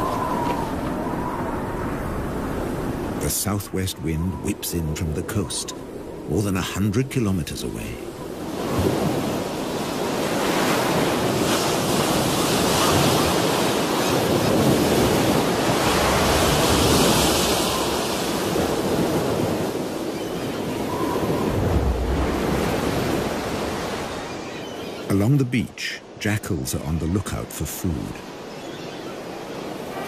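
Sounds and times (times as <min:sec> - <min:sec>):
strong wind blowing: 0:00.0 - 0:03.3, 0:08.1 - 0:20.0, 0:20.6 - 0:24.1
ocean surf: 0:00.0 - 0:30.0.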